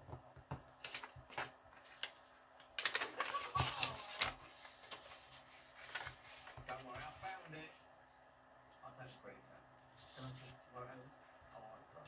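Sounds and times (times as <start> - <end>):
paper rustling and crinkling: 0.7 - 7.6, 9.9 - 11.6.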